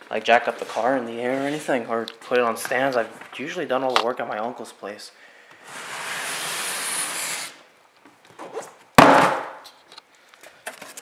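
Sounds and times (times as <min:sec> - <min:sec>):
cardboard scraping: 0:00.4 - 0:01.9
loud thud: 0:09.0 - 0:09.6.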